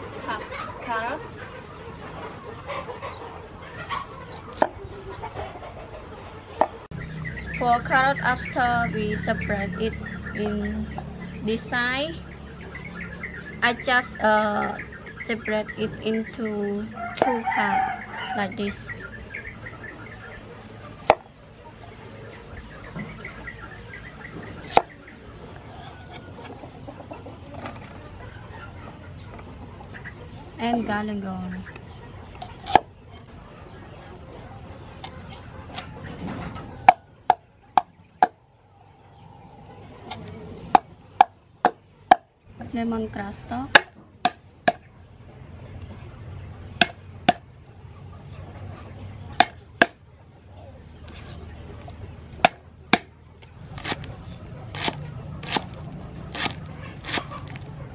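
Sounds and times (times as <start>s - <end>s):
chickens clucking: 0.0s - 57.9s
knife chopping on wooden block: 24.6s - 24.9s, 53.8s - 54.1s, 54.7s - 57.6s.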